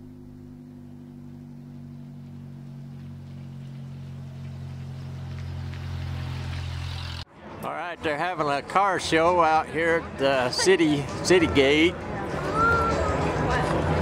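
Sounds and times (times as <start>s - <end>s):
car engine passing slowly: 0.0s - 7.3s
tyre and road noise: 0.0s - 14.0s.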